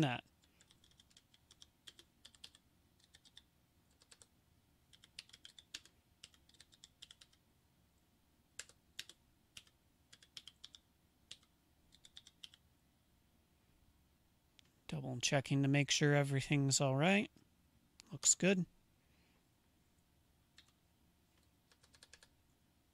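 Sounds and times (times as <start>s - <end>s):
faint keyboard typing: 0.1s - 7.4s, 8.5s - 12.7s, 20.5s - 22.6s.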